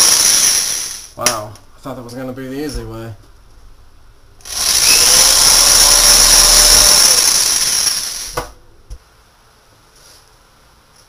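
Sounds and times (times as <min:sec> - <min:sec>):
electric drill running: 0:00.0 - 0:01.1, 0:04.4 - 0:08.4.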